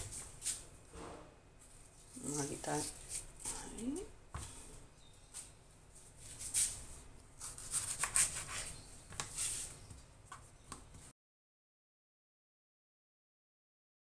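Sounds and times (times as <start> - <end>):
papery scrapes: 1.6 - 3.8, 6.1 - 9.8.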